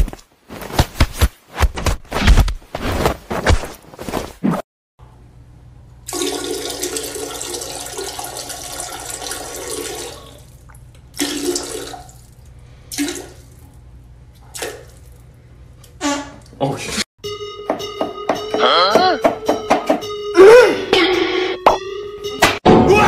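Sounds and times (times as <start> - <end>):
water running: 6.1 - 13.7.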